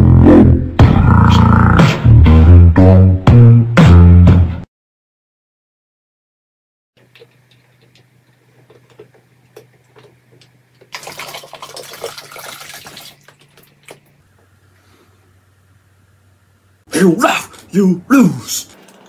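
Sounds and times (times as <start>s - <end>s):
water pouring: 10.8s - 14.2s.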